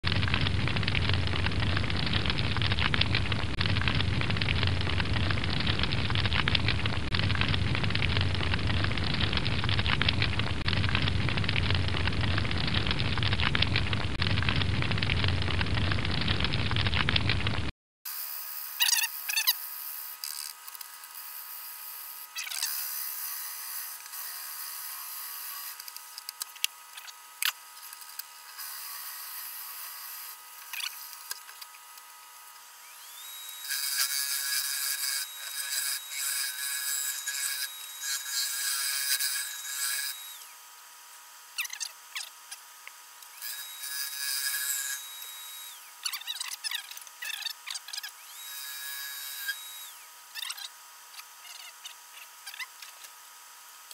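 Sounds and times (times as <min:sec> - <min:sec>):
crackling fire-like noise: 0:00.0 - 0:17.7
wood lathe whining: 0:18.1 - 0:53.9.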